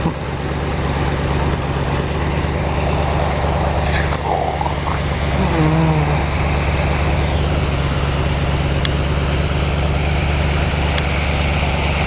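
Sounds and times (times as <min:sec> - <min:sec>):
low steady hum: 0:01.4 - 0:09.1.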